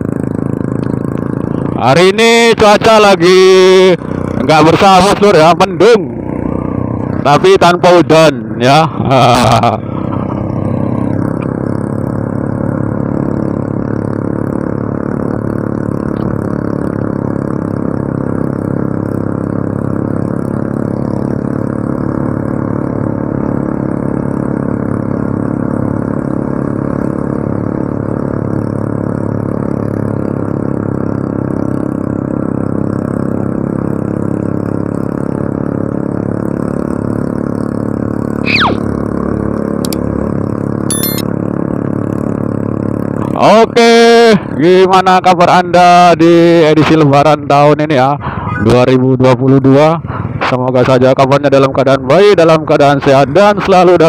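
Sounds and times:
motorcycle engine running: 0.0 - 54.0
high falling tone: 38.4 - 38.9, 40.9 - 41.2.

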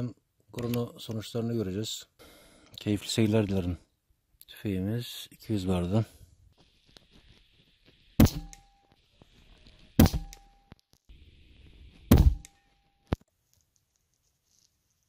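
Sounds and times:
air rifle shots: 8.2 - 8.6, 10.0 - 10.4, 12.1 - 12.5.

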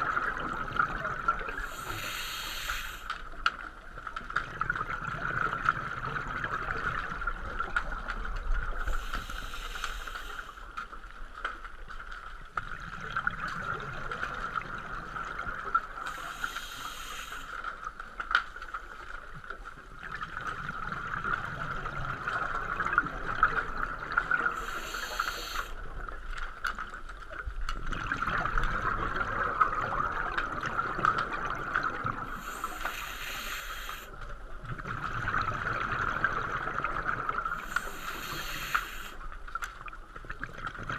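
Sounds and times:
hissing regulator inhalations: 1.6 - 3.2, 8.9 - 10.6, 16.1 - 17.6, 24.5 - 25.8, 32.3 - 34.2, 37.6 - 39.2
bubbling exhaled air: 27.9 - 39.3.

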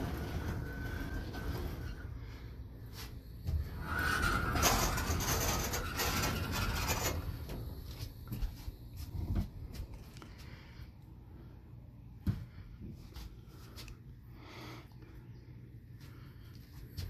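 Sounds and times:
roof rolling on track wheels: 0.0 - 2.3, 3.5 - 7.8.

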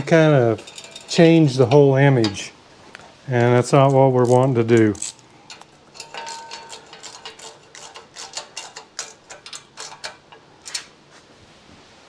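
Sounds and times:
hand tools clicking and clinking: 0.4 - 2.4, 3.8 - 11.0.

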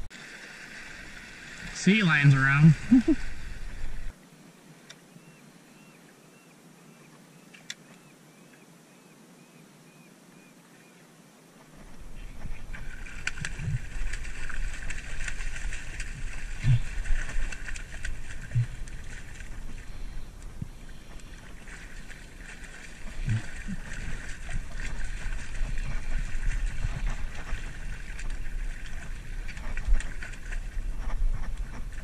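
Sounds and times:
water splashing against rocks: 0.0 - 4.2, 11.6 - 32.0
wind buffeting microphone: 11.7 - 22.1, 23.0 - 32.0.

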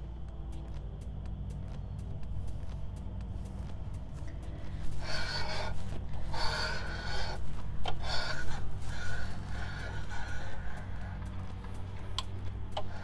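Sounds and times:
steady low hum: 0.0 - 13.0
cutter scraping metal: 5.0 - 12.0.

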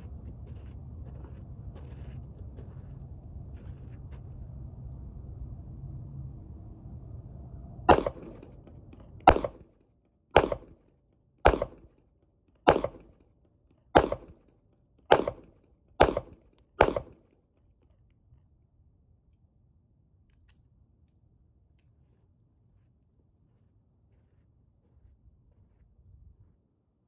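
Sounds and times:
pistol shots with echo: 7.9 - 8.6, 9.3 - 9.7, 10.4 - 10.8, 11.4 - 11.9, 12.7 - 13.2, 14.0 - 14.4, 15.1 - 17.2.

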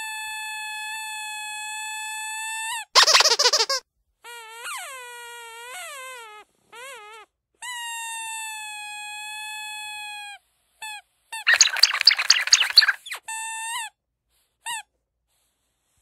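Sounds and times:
rubber squeaky dog toy squeaking: 3.0 - 3.8, 11.5 - 13.2.

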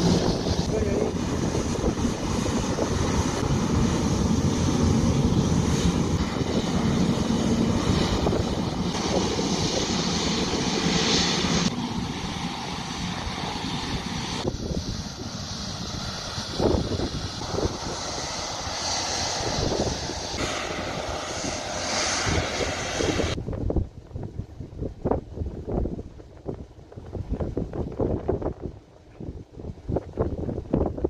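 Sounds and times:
jet engines rumbling and hissing: 0.0 - 31.0.

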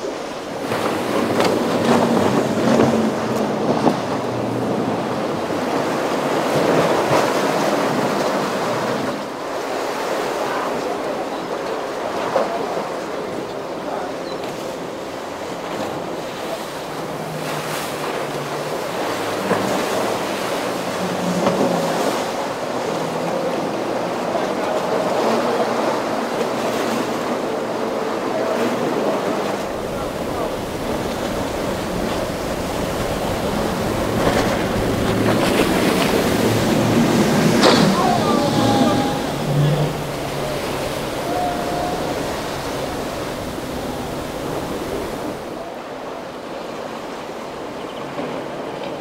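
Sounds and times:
boat engine running: 0.0 - 9.8, 12.0 - 45.6
waves breaking: 0.0 - 49.0
wind buffeting microphone: 28.4 - 45.6.

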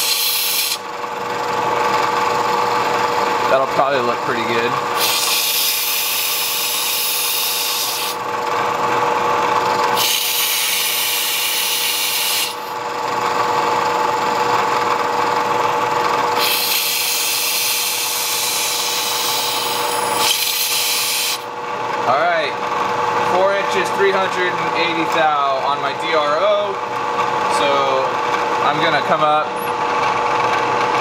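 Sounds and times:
hissing metal cutting: 0.0 - 0.8, 3.8 - 8.2, 9.9 - 12.7, 16.4 - 21.4
milling machine motor hum: 0.0 - 31.0.

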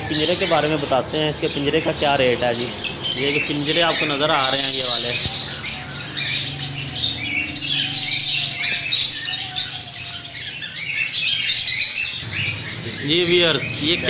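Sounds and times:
parrots chirping and squawking: 0.0 - 14.0.

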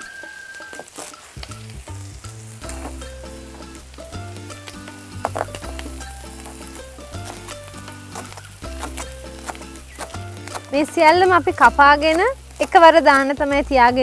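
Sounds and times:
background music with bass line: 1.4 - 14.0
knife chopping on cutting board: 7.2 - 11.3.

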